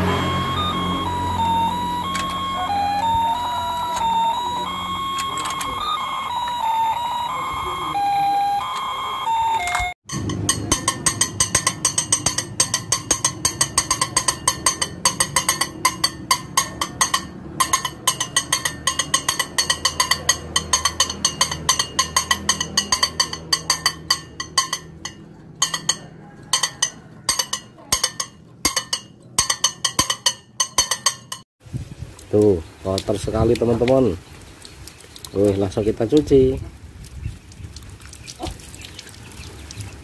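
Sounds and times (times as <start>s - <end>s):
push toy clacking: 2.0s - 6.6s.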